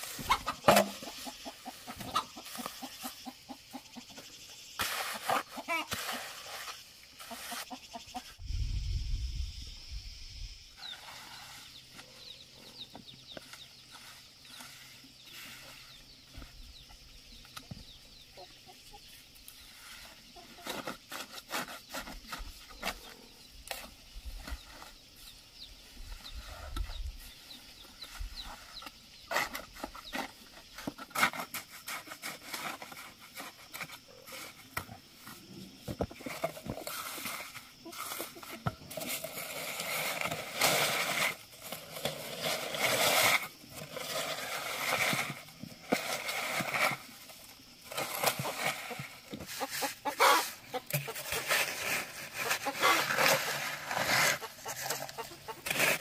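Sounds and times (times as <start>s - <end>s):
hand float scraping concrete: 4.8s - 7.8s, 47.9s - 56.0s.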